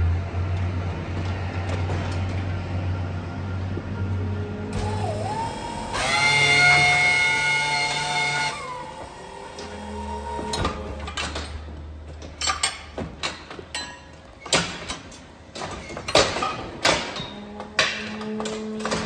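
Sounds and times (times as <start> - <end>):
hydraulic pump humming: 4.7 - 11.3.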